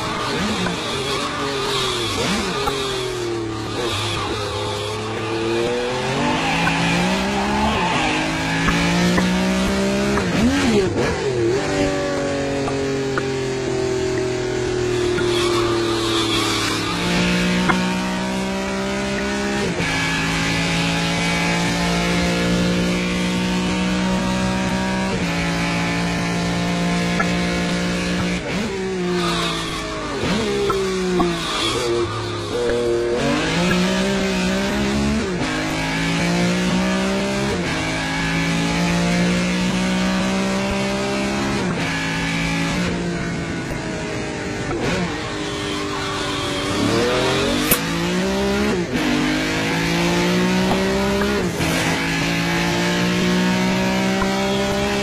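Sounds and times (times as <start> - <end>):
sports car engine revving hard: 0.0 - 13.5, 46.6 - 55.0.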